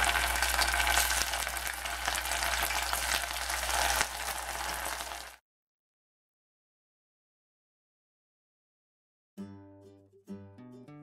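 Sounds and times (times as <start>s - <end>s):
meatballs sizzling in hot oil: 0.0s - 5.4s.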